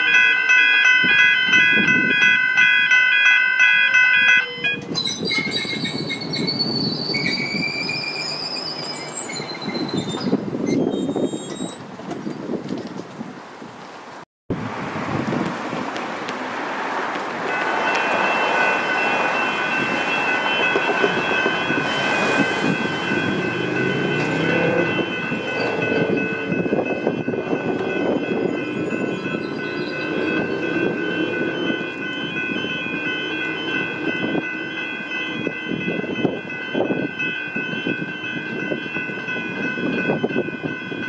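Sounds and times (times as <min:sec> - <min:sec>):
level crossing warning bells: 0:00.0 - 0:06.7, 0:17.4 - 0:41.0
electric train passing: 0:00.0 - 0:10.6, 0:14.6 - 0:41.0.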